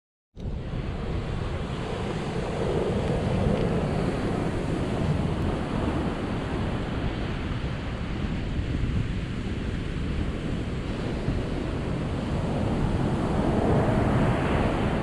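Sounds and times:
wind rumble on microphone: 0.4 - 15.0
ocean surf breaking: 9.7 - 15.0.

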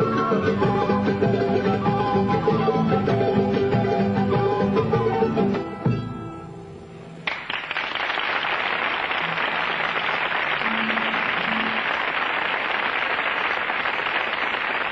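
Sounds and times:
audience applause: 7.2 - 14.9.

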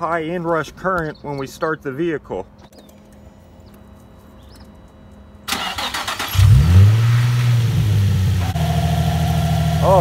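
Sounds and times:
car engine idling: 5.5 - 10.0.

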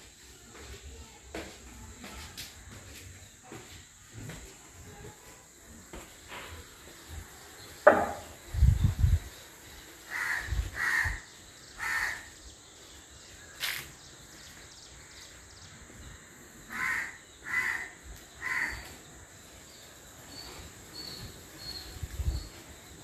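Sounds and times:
crow cawing: 10.1 - 12.3, 16.7 - 18.9.

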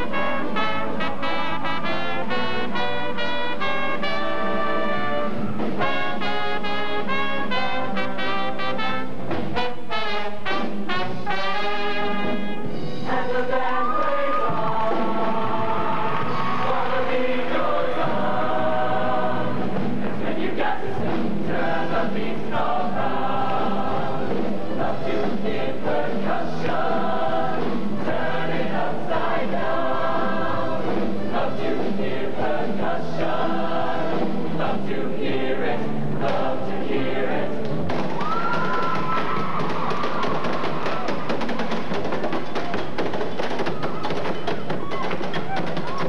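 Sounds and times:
choir singing in harmony: 11.7 - 37.9.

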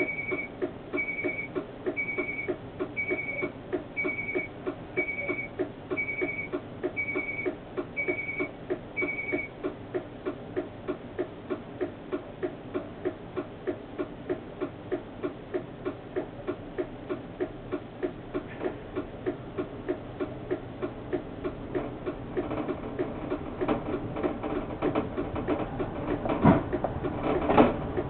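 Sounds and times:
high beep: 0.0 - 9.5
steady clicking: 0.0 - 28.0.

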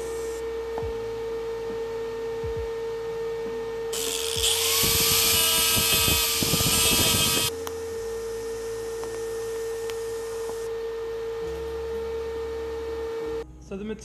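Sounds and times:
steady hum tone: 0.0 - 14.0
rotary grinder whining: 3.9 - 10.7.

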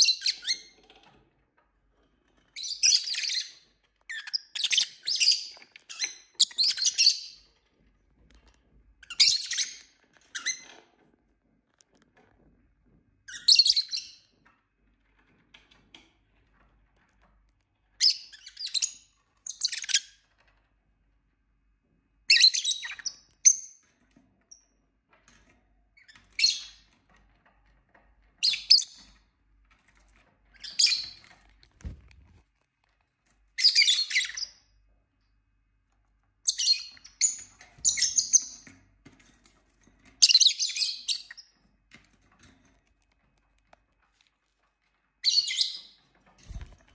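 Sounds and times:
lovebirds chirping and squawking: 2.6 - 7.6, 9.0 - 10.8, 13.3 - 14.3, 18.0 - 20.5, 22.3 - 23.9, 28.4 - 29.2, 30.5 - 32.4, 33.5 - 34.7, 36.4 - 38.8, 40.1 - 41.6, 45.2 - 46.9.

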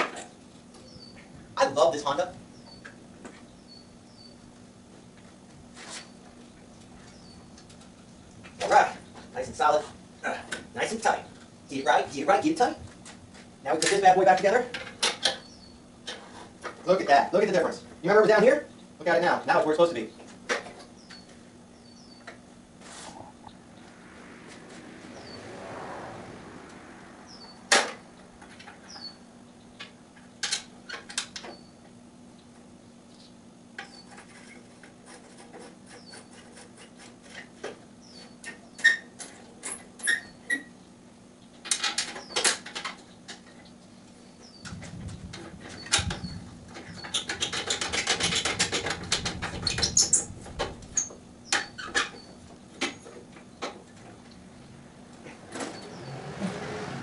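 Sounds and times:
tools and metal parts rattling: 46.8 - 50.2.

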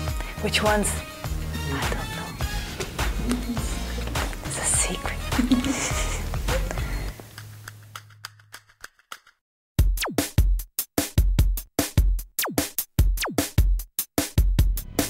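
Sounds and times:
electronic drum machine beat: 0.7 - 7.2, 9.8 - 15.0.

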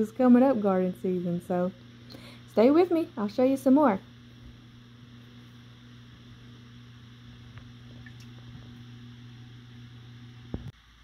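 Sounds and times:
steady low electrical hum: 0.0 - 11.0.

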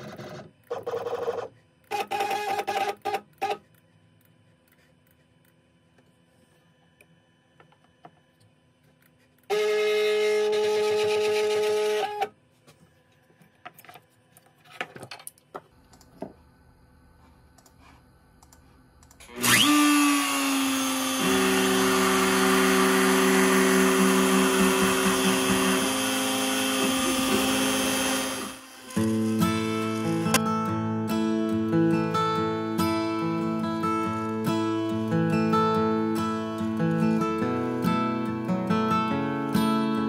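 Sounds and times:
stepper motors whining: 19.2 - 30.4
router spindle cutting wood: 19.3 - 30.4.

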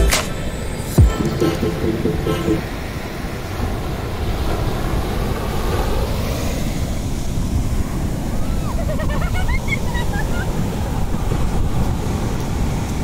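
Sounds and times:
ocean surf breaking: 0.0 - 13.0
wind buffeting microphone: 2.7 - 13.0.

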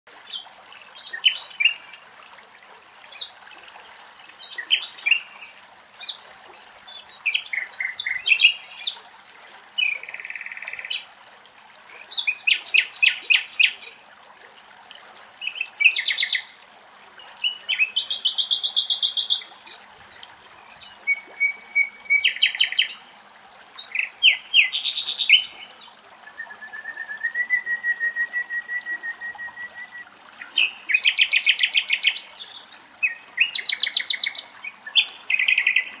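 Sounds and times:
nightingale singing: 23.9 - 36.0.

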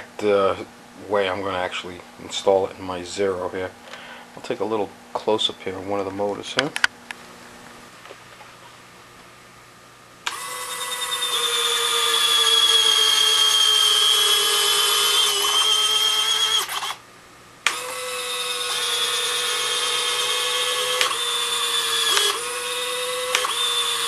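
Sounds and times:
gear motor whining: 10.3 - 17.0, 17.7 - 24.0.

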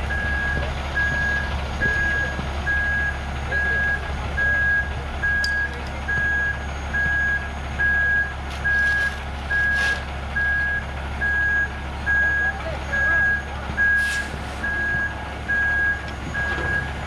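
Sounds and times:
truck engine running: 0.0 - 17.0
back-up alarm beeping: 0.1 - 17.0
tools scraping wet concrete: 8.5 - 10.1.

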